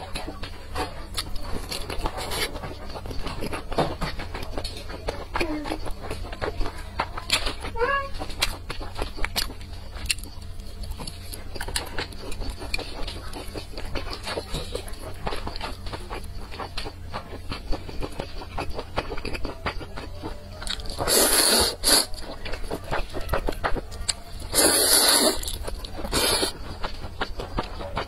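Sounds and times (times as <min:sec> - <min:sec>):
wet chewing: 0:00.0 - 0:28.0
loud noodle slurp: 0:21.0 - 0:22.1, 0:24.5 - 0:26.5.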